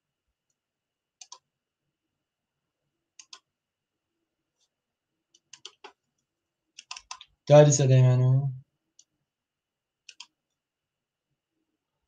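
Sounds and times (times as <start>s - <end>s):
computer mouse clicks: 1.2s - 1.5s, 3.1s - 3.5s, 5.3s - 6.2s, 6.8s - 7.4s, 9.0s - 9.2s, 10.0s - 10.6s.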